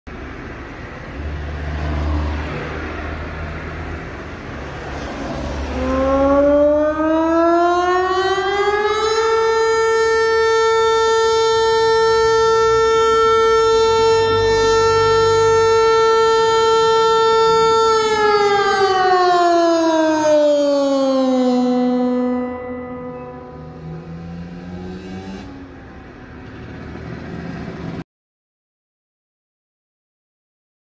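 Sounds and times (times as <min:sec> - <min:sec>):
electronic siren tone: 0:05.3 - 0:27.0.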